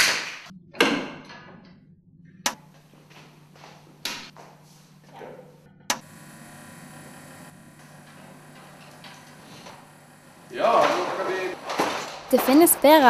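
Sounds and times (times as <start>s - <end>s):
cooling fan humming: 2.2s - 13.0s
projector switch click: 5.9s - 6.2s.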